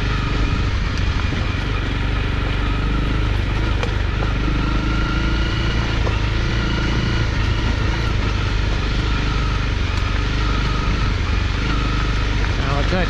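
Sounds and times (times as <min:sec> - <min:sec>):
motorcycle engine cruising: 0:00.0 - 0:13.0.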